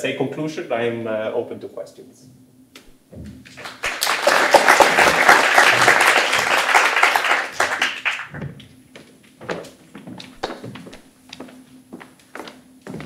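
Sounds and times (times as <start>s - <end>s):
audience applauding: 3.5s - 8.3s.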